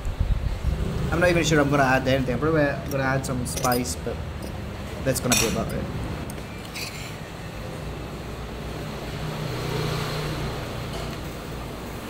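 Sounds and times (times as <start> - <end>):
light clink: 2.8 - 4.6, 5.2 - 7.0.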